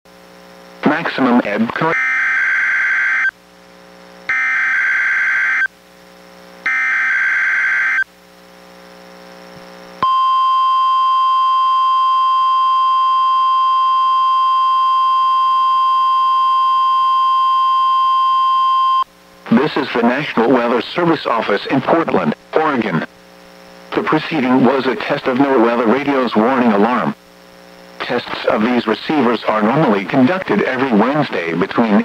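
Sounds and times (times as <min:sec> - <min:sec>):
steady warning alarm tone: 0:01.8 - 0:03.3, 0:04.3 - 0:05.7, 0:06.6 - 0:08.1, 0:10.0 - 0:19.0.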